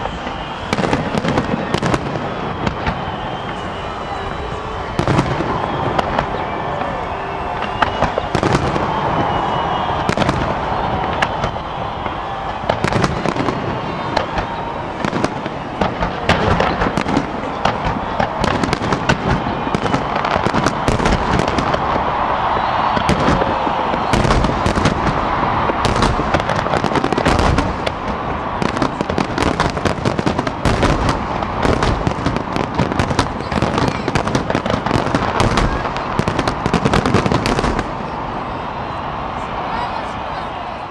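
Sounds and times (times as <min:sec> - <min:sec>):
fireworks banging and crackling: 0:00.0 - 0:40.9.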